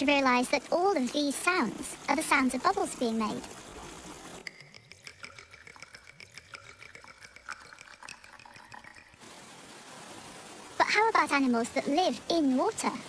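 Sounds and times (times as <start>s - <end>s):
wine pouring into a glass: 4.4s - 9.2s.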